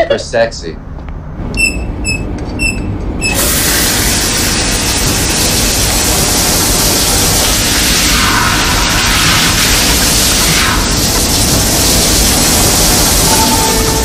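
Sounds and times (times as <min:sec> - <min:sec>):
shower spray hissing: 0:03.3 - 0:14.0.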